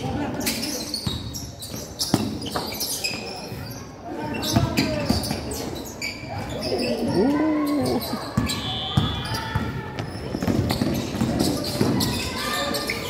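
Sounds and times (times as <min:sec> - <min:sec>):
voices calling out: 0:06.5 - 0:09.8.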